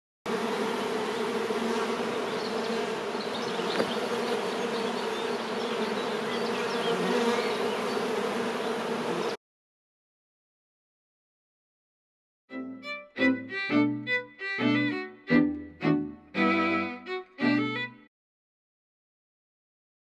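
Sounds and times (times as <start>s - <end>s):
honeybees buzzing: 0.3s - 9.4s.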